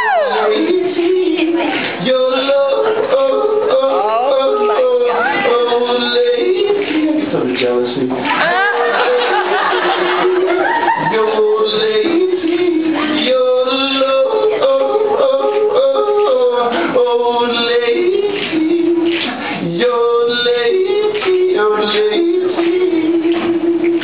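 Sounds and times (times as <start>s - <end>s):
man yodeling: 0.0s - 0.9s, 2.7s - 6.0s.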